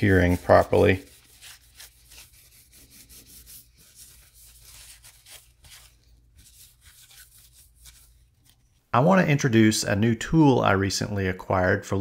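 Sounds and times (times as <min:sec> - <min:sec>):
paper towel rubbing foil: 0:00.0 - 0:08.8.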